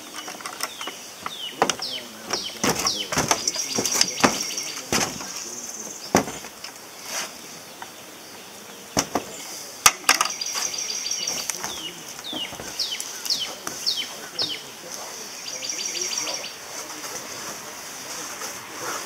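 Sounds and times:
birdsong: 0.0 - 19.0
knocks on metal roof: 1.6 - 5.4, 6.1 - 6.5, 9.0 - 9.3.

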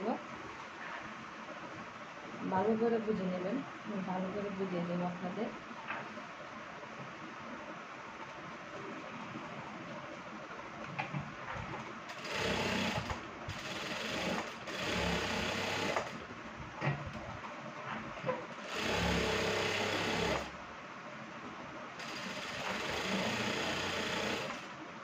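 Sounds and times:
sewing machine stitching: 12.1 - 16.2, 18.7 - 20.5, 22.0 - 24.7.

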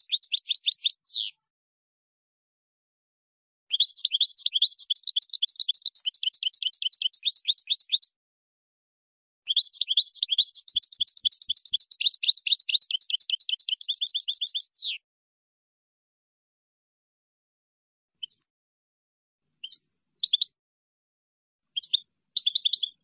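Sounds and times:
finch chirps and trills: 0.0 - 1.4, 3.7 - 8.1, 9.5 - 15.0, 18.2 - 18.5, 19.6 - 20.6, 21.8 - 23.0.

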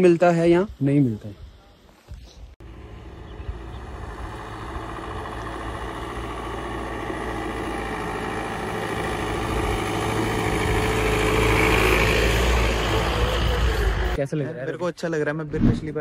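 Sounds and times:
van engine approaching: 2.6 - 14.2.

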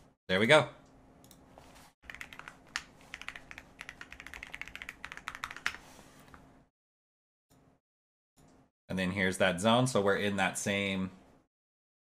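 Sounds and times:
computer keyboard typing: 2.0 - 5.8.

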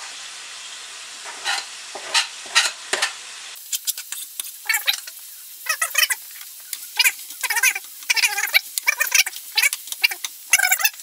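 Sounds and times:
crackles and pops of frying meat: 0.0 - 11.0
meat sizzling in a frying pan: 0.0 - 11.0.

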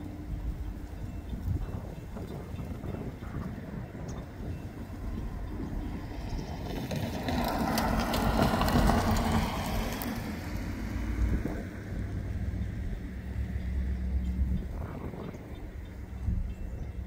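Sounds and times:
train engine tone: 0.0 - 9.9
rapid clicks of train wheels: 0.0 - 10.6
freight train rolling past: 0.0 - 17.0.

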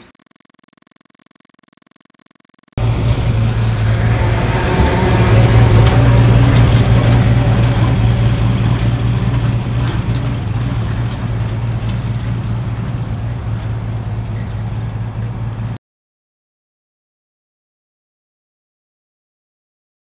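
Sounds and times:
truck engine running at low revs: 2.8 - 15.8.

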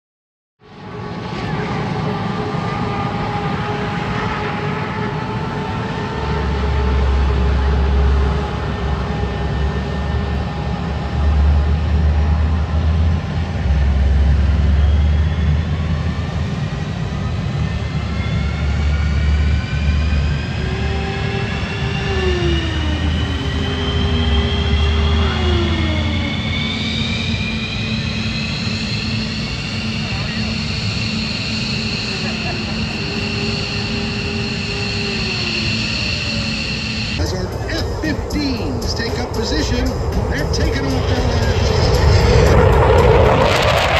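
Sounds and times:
jet engines whining: 0.6 - 43.9
heavy low rumble: 22.3 - 43.9.

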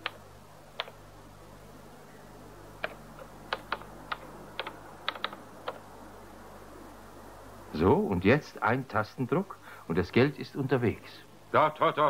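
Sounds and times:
keyboard key clicks: 0.8 - 1.0, 2.8 - 5.8.

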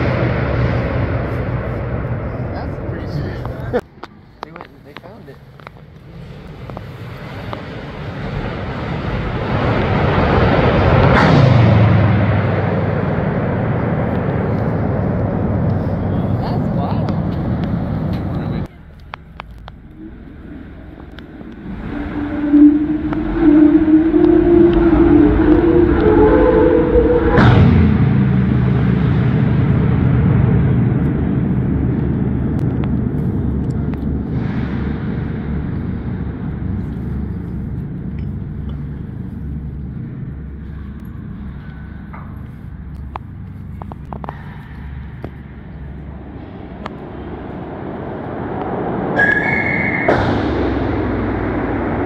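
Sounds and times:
deep echoing rumble: 0.0 - 52.0
ringing metal bang: 48.9 - 52.0
brief high squeal: 49.2 - 50.2.

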